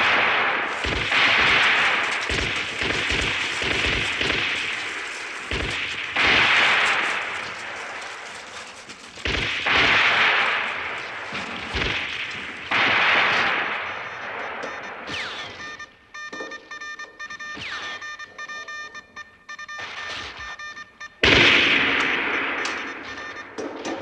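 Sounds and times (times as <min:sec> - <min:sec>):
rifle shots: 0:00.0 - 0:16.6, 0:21.2 - 0:24.0
bursts of gunfire: 0:00.0 - 0:24.0.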